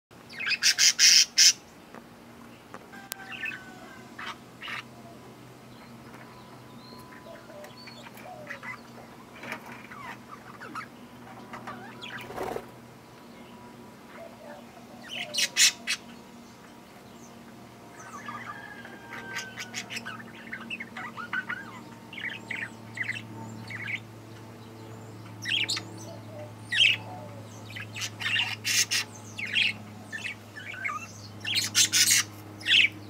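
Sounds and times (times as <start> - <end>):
soft bird chirps and chatter: 0.2 - 33.0
budgerigars squawking: 0.4 - 1.6, 3.1 - 4.9, 7.0 - 11.0, 14.2 - 16.2, 18.0 - 24.0, 25.4 - 33.0.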